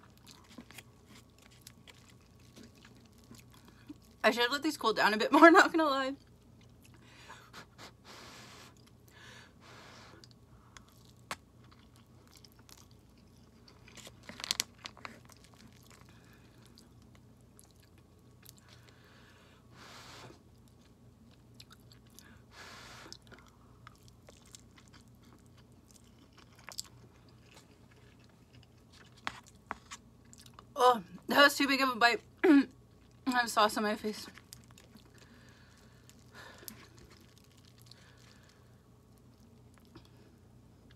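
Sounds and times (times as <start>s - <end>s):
person chewing noodles: 0.0s - 4.2s, 8.6s - 9.1s, 10.2s - 19.1s, 20.3s - 30.7s, 34.4s - 40.9s.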